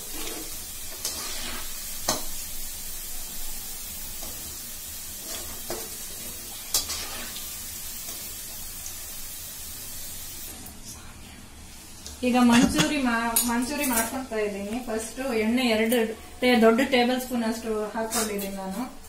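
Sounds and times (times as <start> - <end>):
food sizzling in hot oil: 0.0 - 10.6.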